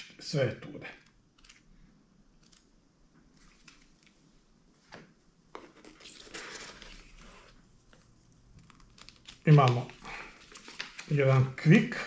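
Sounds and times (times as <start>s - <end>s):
paper and cardboard rustling: 5.6s - 11.6s.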